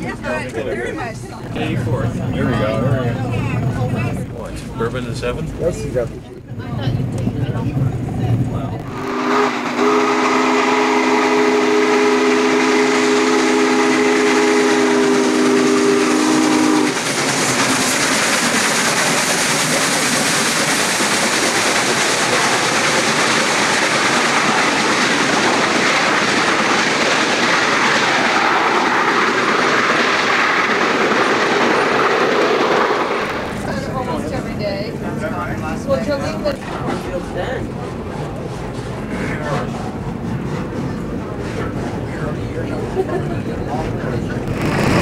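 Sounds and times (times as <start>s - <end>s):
train passing rush: 0.0s - 45.0s
steam locomotive whistle: 8.9s - 17.1s.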